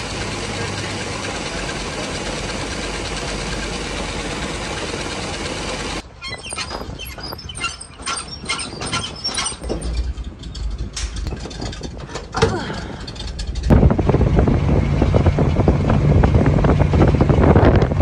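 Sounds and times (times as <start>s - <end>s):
truck engine and road noise: 0.0s - 18.0s
clicks and rattles: 6.6s - 13.8s
low rumble: 9.4s - 18.0s.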